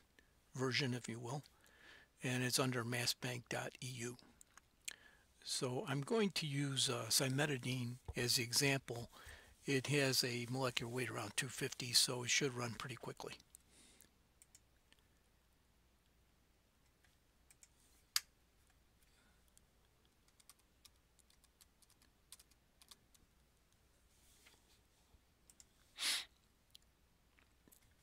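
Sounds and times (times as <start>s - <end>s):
keyboard typing: 20.1s - 23.2s.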